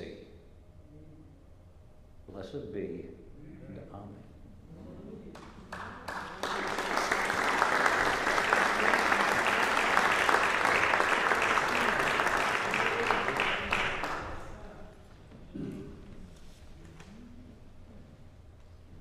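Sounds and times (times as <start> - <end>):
congregation applauding: 5.4 - 14.8.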